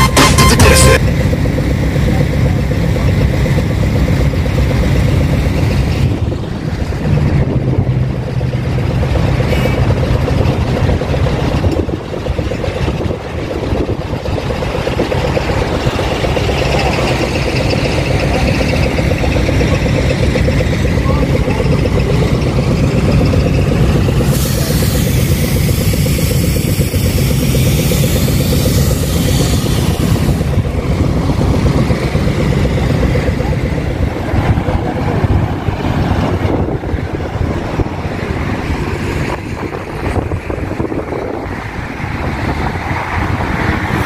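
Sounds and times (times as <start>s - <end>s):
electronic music: 0.0s - 1.0s
diesel engine idling: 0.0s - 44.0s.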